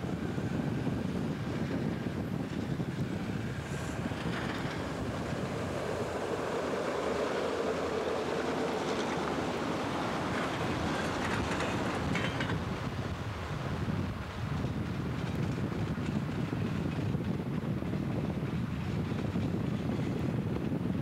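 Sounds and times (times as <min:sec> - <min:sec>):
vehicle running noise: 0:00.0 - 0:13.2
wind buffeting microphone: 0:00.0 - 0:21.0.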